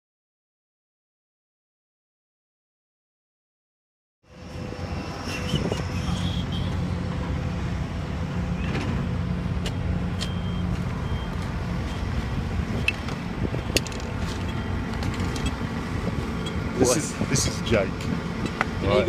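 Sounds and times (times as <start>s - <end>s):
diesel lorry engine droning: 4.2s - 19.0s.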